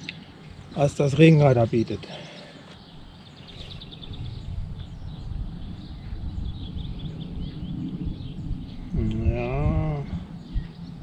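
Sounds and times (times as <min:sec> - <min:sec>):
small birds chirping: 0:00.0 - 0:11.0
wind rumbling on microphone: 0:02.9 - 0:11.0.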